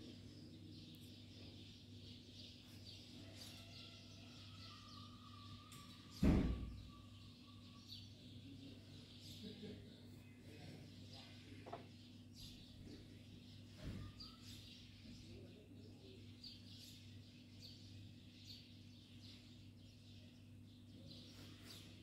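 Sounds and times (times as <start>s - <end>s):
small birds chirping: 0.0s - 22.0s.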